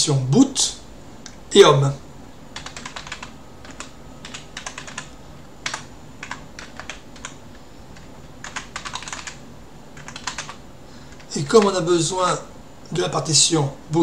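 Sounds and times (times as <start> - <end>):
typing on computer keyboard: 2.6 - 7.4, 8.0 - 9.4, 10.0 - 11.8.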